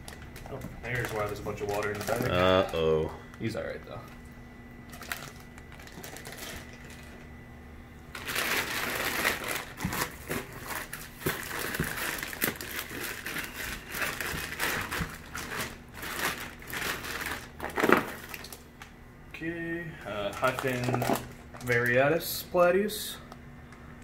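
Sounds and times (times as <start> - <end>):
plastic bags crinkling: 0.0 - 2.9, 4.9 - 7.3, 8.1 - 18.9, 20.0 - 22.0.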